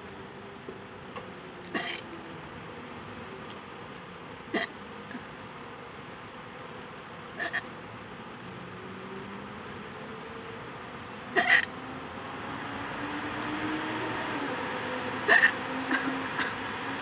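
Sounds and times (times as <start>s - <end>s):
faint hum: 0.0s - 17.0s
person hiccuping: 1.8s - 2.0s, 7.4s - 7.6s, 11.4s - 11.7s, 15.3s - 16.6s.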